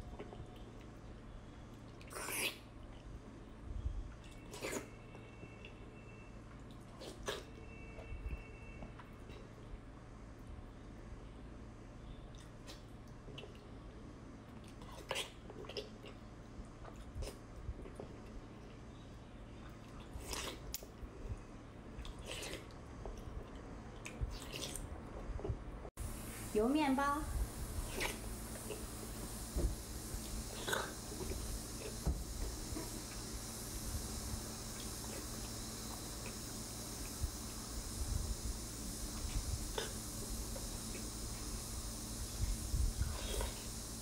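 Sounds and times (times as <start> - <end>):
soft chewing: 0.0 - 5.8, 6.5 - 8.1, 8.8 - 9.8, 12.1 - 25.8
wet slurping of food: 2.0 - 2.7, 4.4 - 5.0, 19.9 - 20.9, 22.0 - 24.9, 27.6 - 37.3, 42.8 - 43.9.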